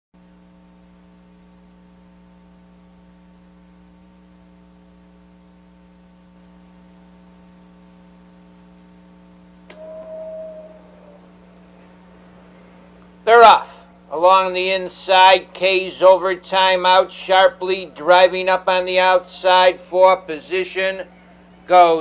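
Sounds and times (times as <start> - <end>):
electrical hum with high whine: 0.2 - 22.0
brief steady tone: 9.7 - 12.1.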